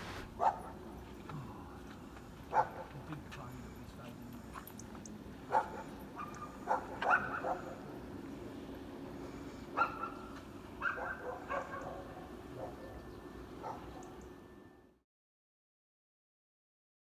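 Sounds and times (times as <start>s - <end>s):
steady low hum: 0.0s - 15.0s
dog barking and yipping: 0.4s - 0.8s, 2.5s - 3.0s, 5.5s - 7.8s, 9.8s - 13.0s, 13.6s - 14.0s.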